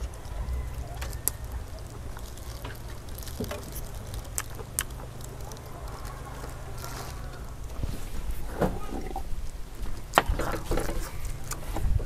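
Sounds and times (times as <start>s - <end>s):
chewing and tearing crackles: 0.0s - 12.0s
steady low hum: 0.0s - 12.0s.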